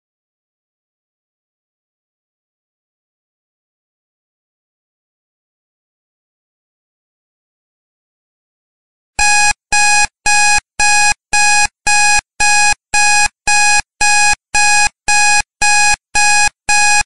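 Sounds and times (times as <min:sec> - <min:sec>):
electronic alarm beeping: 0:09.2 - 0:17.0.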